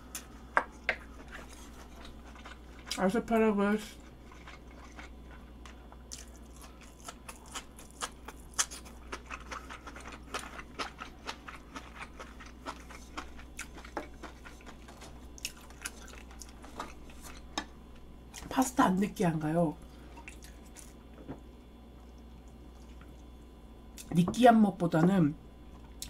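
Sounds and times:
crunchy chewing: 1.0 - 3.1, 3.9 - 17.6.

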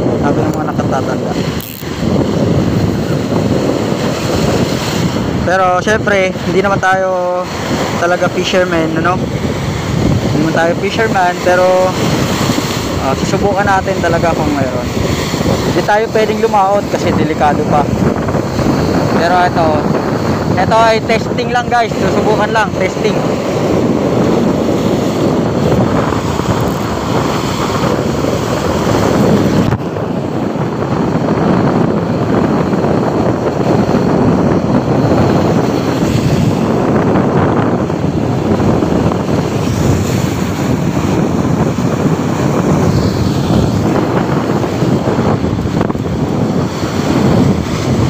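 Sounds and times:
surf breaking against seawall: 0.0 - 48.0
wind buffeting microphone: 0.0 - 48.0.

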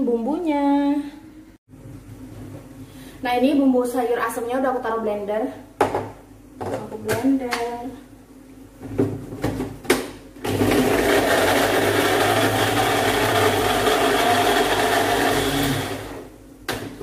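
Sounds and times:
blender motor grinding: 10.4 - 16.3.

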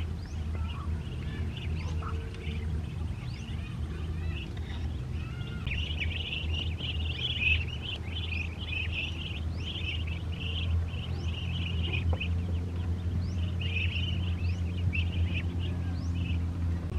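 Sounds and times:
ducklings peeping: 0.0 - 16.9
steady low rumble: 0.0 - 16.9.

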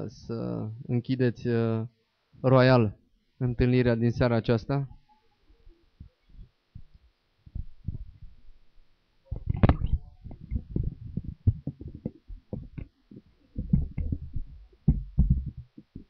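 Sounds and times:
microphone handling thumps and rubbing: 6.0 - 16.0
sharp knocks on microphone: 13.6 - 16.0.

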